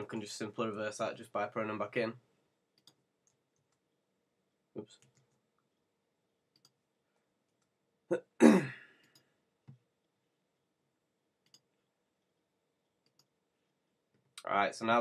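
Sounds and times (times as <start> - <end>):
faint clicks: 2.8 - 3.8, 6.5 - 6.8, 11.4 - 11.7, 13.0 - 13.4
person coughing: 8.1 - 8.9.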